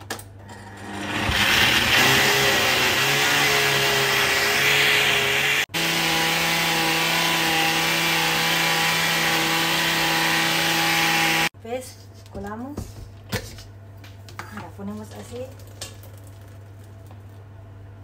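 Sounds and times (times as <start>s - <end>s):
blender motor running: 0.5s - 11.5s.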